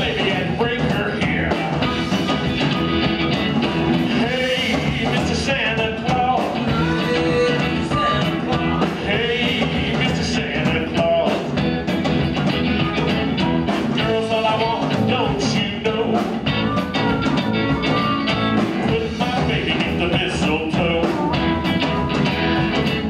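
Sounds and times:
bass guitar: 0:00.0 - 0:23.0
drums: 0:00.0 - 0:23.0
electric guitar: 0:00.0 - 0:23.0
harmonica: 0:01.8 - 0:10.6, 0:15.9 - 0:23.0.

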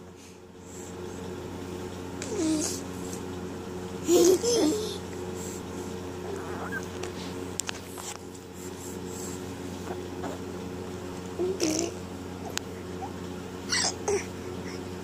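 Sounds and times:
steady low hum: 0:00.0 - 0:15.0
baby cooing and babbling: 0:02.2 - 0:02.8, 0:06.2 - 0:06.9, 0:11.4 - 0:13.1, 0:13.7 - 0:14.8.

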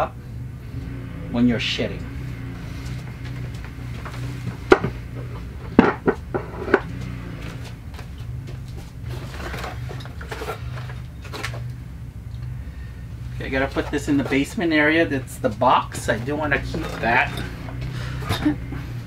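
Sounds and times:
steady low hum: 0:00.0 - 0:19.0
knocks and clacks of household items: 0:04.0 - 0:07.1.

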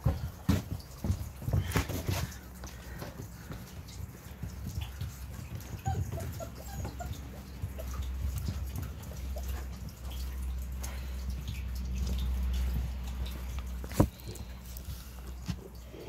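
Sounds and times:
paws clicking on wooden boards: 0:00.0 - 0:16.0
faint puppy squeaks: 0:05.7 - 0:08.0.

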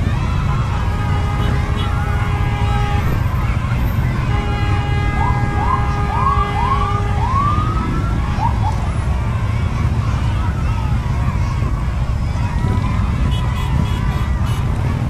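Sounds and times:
motorcycle engines rumbling: 0:00.0 - 0:15.0
steady horn-like tone: 0:00.9 - 0:07.7
siren whooping: 0:03.4 - 0:09.0.

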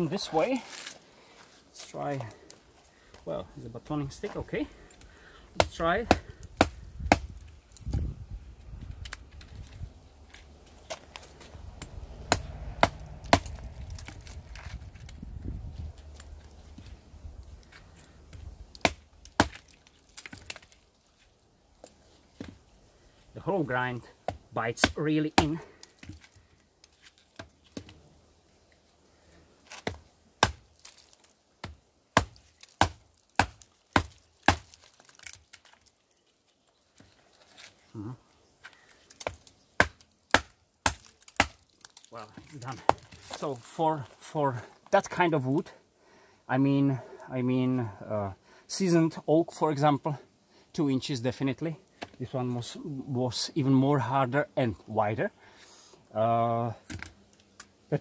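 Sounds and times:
knife chopping into wood: 0:05.6 - 0:08.0, 0:12.2 - 0:13.7, 0:18.8 - 0:19.6, 0:29.7 - 0:30.7, 0:31.6 - 0:34.8, 0:39.2 - 0:41.6.

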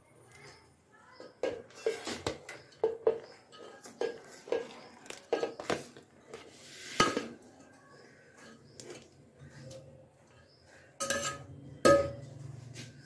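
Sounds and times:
metal spoon clinking on pot: 0:11.0 - 0:12.3.

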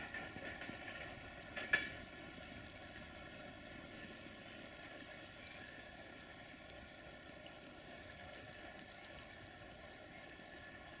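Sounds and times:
distant train rumble and hiss: 0:00.0 - 0:11.0.

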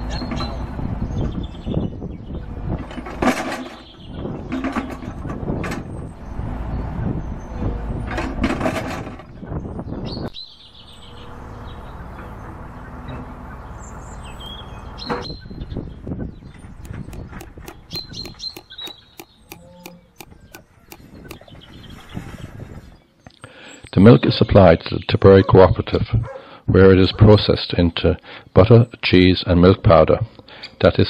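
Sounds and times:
birds chirping: 0:03.6 - 0:08.1, 0:09.2 - 0:25.4
hand tool clicking on wire: 0:16.8 - 0:21.4.

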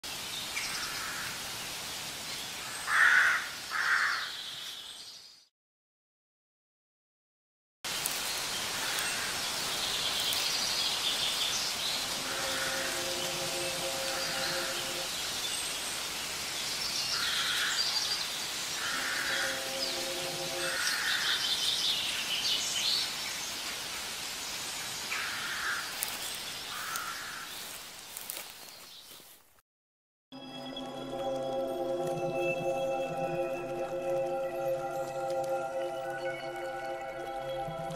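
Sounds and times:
steady hiss: 0:07.9 - 0:16.8
background hiss: 0:07.9 - 0:27.1
birds chirping: 0:08.2 - 0:15.8, 0:16.6 - 0:23.2
raspy animal calls: 0:12.2 - 0:14.9.

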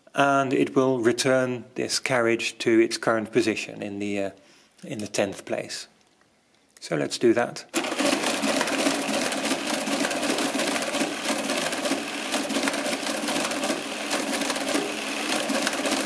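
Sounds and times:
mechanical calculator clattering: 0:07.8 - 0:16.0.

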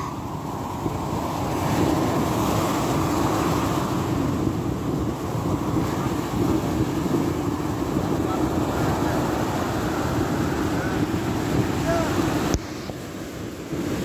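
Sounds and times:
ocean surf breaking on sand: 0:00.0 - 0:14.0
wind buffeting microphone: 0:00.0 - 0:14.0.

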